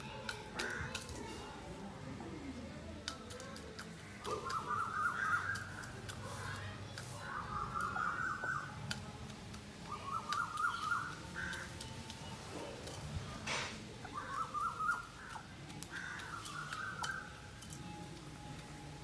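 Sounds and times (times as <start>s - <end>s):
beak pecking grain from metal dish: 3.0s - 19.0s
birds calling: 3.1s - 19.0s.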